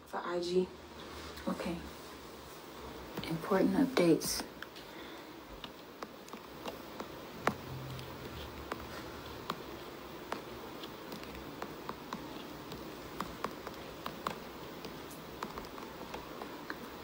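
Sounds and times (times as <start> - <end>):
faint room noise: 0.0 - 17.0.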